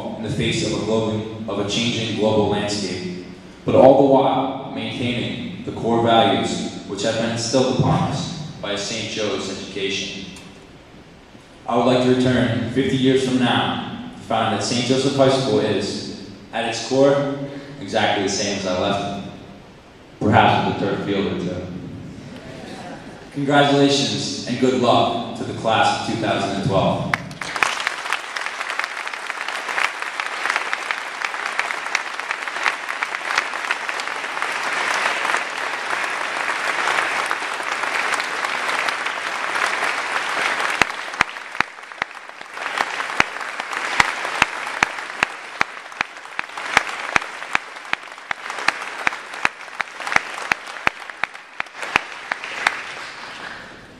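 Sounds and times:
audience applauding: 27.1 - 53.8.

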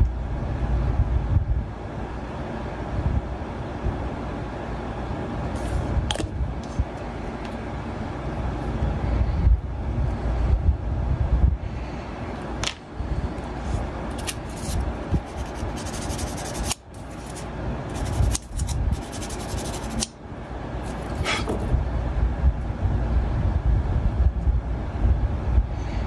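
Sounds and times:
steady low rumble: 0.0 - 26.0
small plastic parts scraping and clicking: 14.1 - 20.1.

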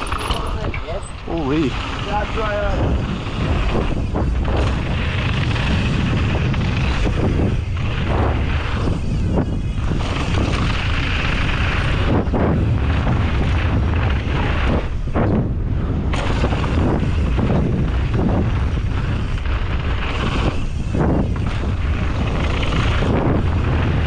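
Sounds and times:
bike and tyres rattling: 0.0 - 24.0
wind rumble on microphone: 0.0 - 24.0.

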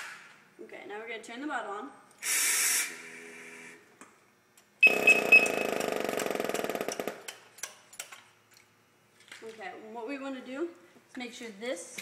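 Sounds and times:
air hissing: 2.2 - 3.0
high alarm beeps: 4.8 - 5.7.

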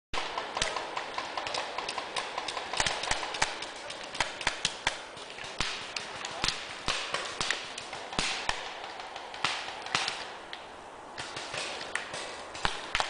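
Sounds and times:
steady hiss: 0.2 - 13.0.

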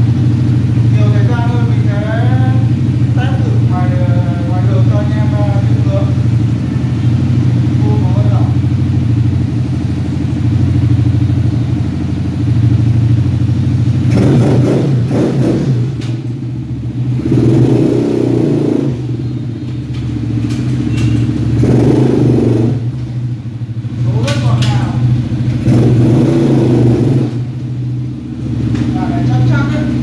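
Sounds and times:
atv engine idling and revving: 0.0 - 30.0.

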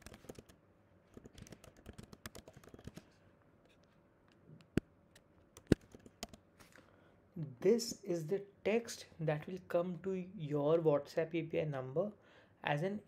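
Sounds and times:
computer keyboard typing: 0.0 - 3.1, 5.6 - 6.4.

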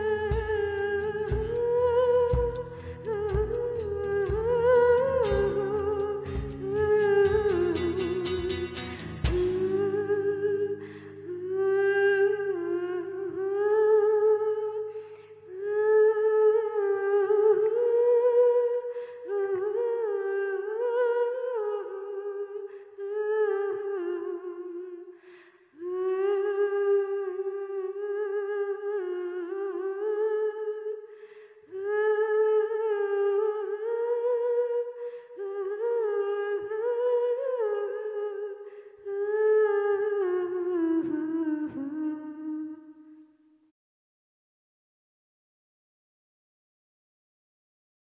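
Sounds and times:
woman humming: 0.0 - 14.4
breaths: 2.6 - 3.1, 10.8 - 11.3, 14.8 - 15.5, 18.8 - 19.3, 22.6 - 23.0, 25.1 - 25.8, 31.0 - 31.8, 34.9 - 35.4, 38.6 - 39.1.

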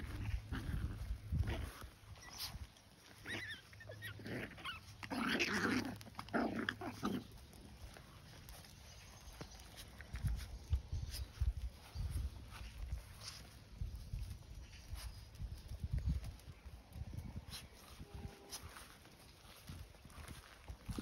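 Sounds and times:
puppies growling and yipping: 0.0 - 16.5.

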